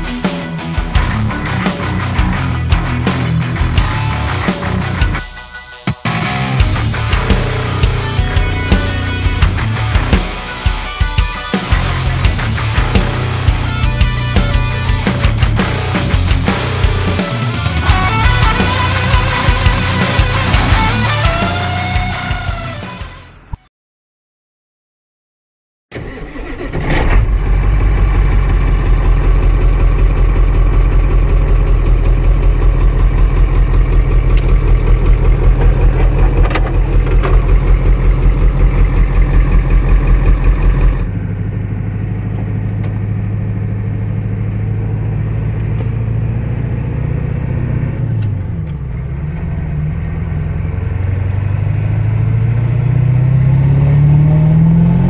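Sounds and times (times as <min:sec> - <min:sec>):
truck accelerating: 0:00.0 - 0:05.2, 0:05.9 - 0:23.6, 0:25.9 - 0:55.0
pickup truck engine running: 0:06.0 - 0:23.1, 0:27.3 - 0:54.1.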